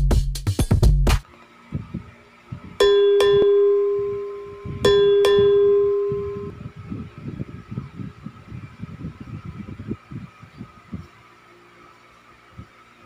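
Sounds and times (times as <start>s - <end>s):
bell chime ding: 2.8s - 6.6s.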